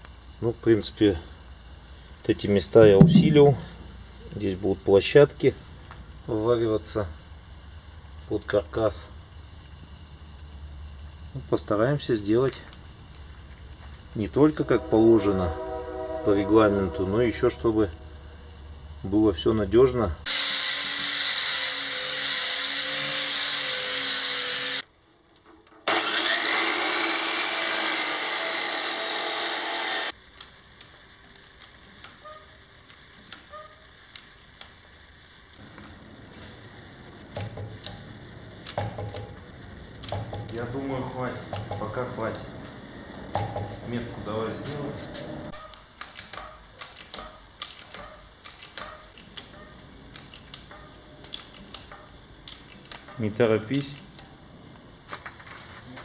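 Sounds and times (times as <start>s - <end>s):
angle grinder cutting steel: 20.3s - 24.8s, 25.8s - 30.2s.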